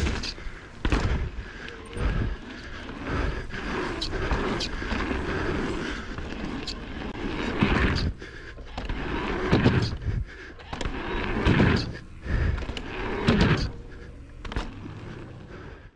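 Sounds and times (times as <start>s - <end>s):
bike landing knocks and rattles: 0.0s - 1.4s, 8.7s - 10.0s, 10.7s - 12.0s, 13.2s - 13.7s
bike tyres on packed dirt: 0.0s - 15.9s.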